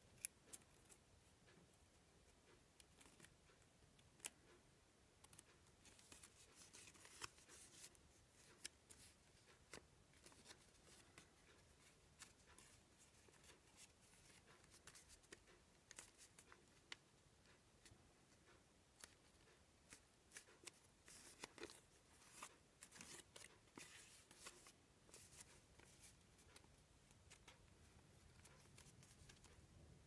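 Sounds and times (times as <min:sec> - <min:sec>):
paper crinkling: 0:05.8 - 0:16.6, 0:19.9 - 0:26.7.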